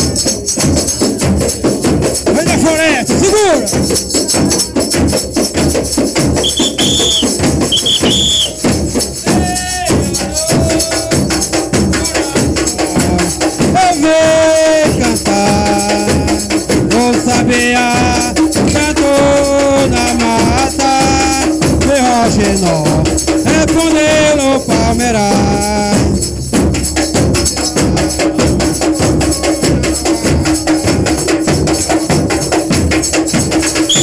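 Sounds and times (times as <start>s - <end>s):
frame drums beating rhythm: 0.0s - 34.0s
high piping tones: 6.4s - 8.7s.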